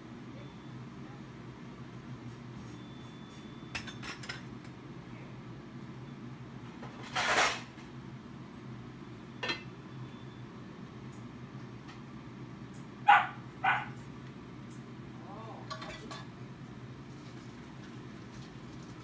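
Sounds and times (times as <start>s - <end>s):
dishes and utensils clinking: 3.7s - 4.5s, 9.4s - 9.7s, 15.7s - 16.3s
steady low hum: 7.8s - 19.0s.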